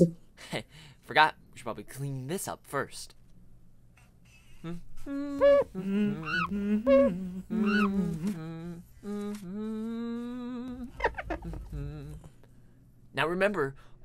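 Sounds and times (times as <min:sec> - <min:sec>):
person humming: 0:04.6 - 0:12.4.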